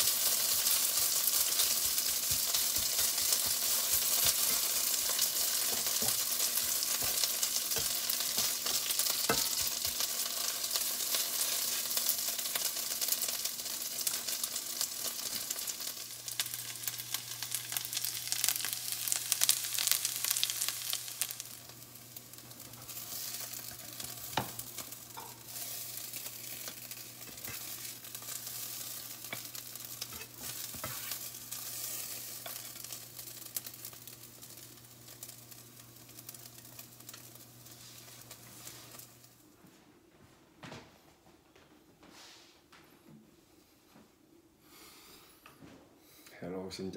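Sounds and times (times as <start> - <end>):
spatula stirring: 0.0 - 12.7, 22.8 - 31.8
potatoes sizzling in a pan: 0.0 - 39.4.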